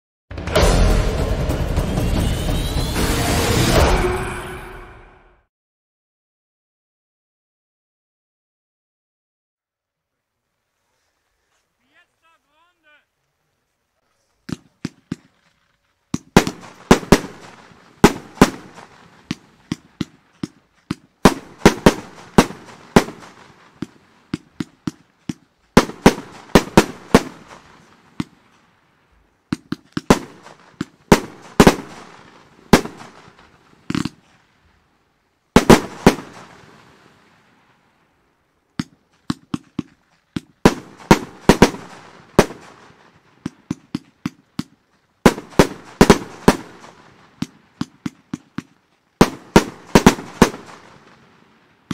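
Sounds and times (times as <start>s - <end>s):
fireworks shots and bangs: 16.1s - 28.5s, 29.5s - 34.2s, 35.5s - 37.4s, 38.8s - 51.9s.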